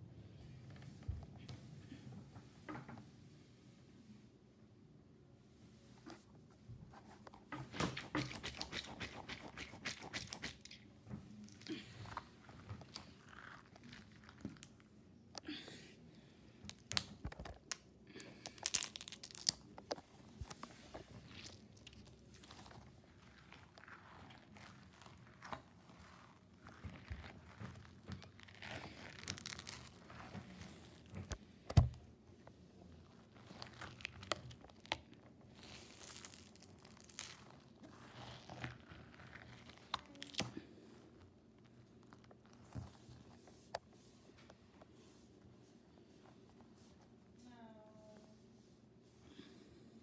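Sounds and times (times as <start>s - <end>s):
stress ball clicks and rustles: 7.2s - 11.2s.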